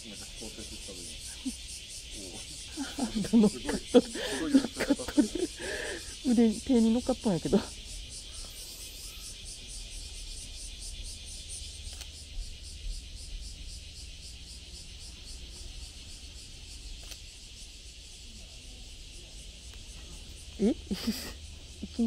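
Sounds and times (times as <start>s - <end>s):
high-pitched insect chorus pulsing: 0.0s - 22.0s
faint clicks: 11.8s - 12.2s, 17.0s - 17.2s.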